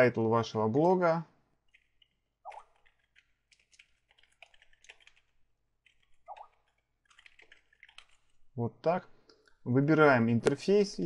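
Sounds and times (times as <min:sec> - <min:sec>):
typing on computer keyboard: 0:01.6 - 0:08.4.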